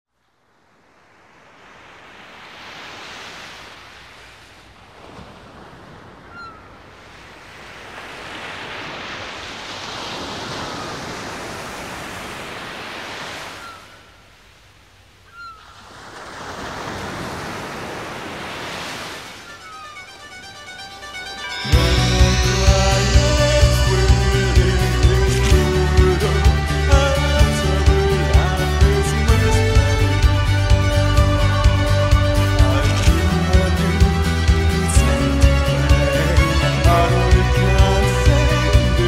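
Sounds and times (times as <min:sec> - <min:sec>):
ocean surf washing: 0:00.4 - 0:39.0
faint gliding chirps: 0:19.3 - 0:24.7.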